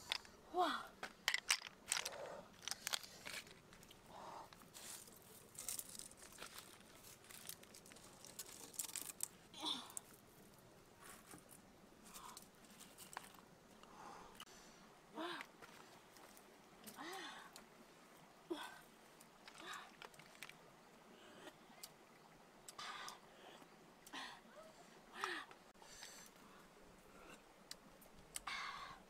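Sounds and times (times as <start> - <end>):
leaf crinkling: 1.4 - 10.2
snail shells clicking together: 7.4 - 9.3.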